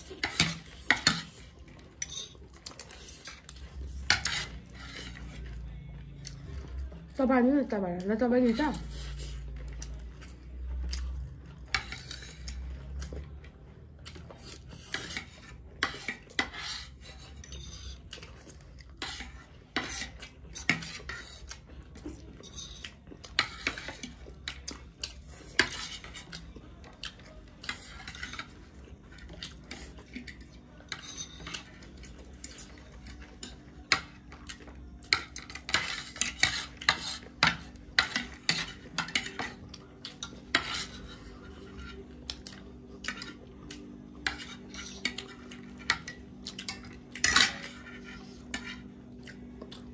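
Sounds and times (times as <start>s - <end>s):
cutlery clinking on plates: 0.0s - 5.3s, 27.6s - 41.0s, 41.7s - 49.3s.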